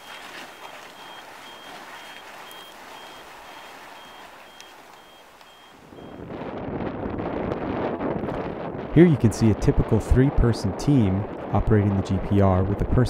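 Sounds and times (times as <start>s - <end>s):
high electronic beeps: 0.0s - 6.2s
steady outdoor hiss: 0.0s - 6.2s
wind noise: 5.7s - 13.0s.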